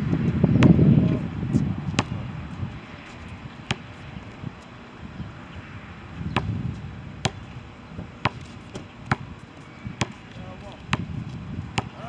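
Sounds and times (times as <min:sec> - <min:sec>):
basketball bouncing on concrete: 0:00.5 - 0:00.8, 0:01.5 - 0:02.2, 0:03.6 - 0:04.0, 0:07.2 - 0:07.5, 0:08.1 - 0:09.4, 0:10.0 - 0:12.0.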